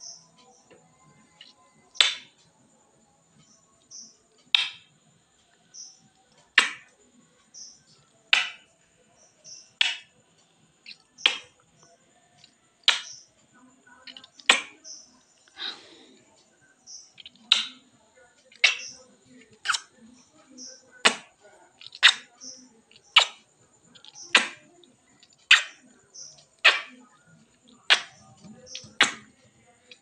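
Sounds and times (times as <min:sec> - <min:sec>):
lips kissing mirror glass: 0:18.5 - 0:19.9, 0:21.0 - 0:24.7.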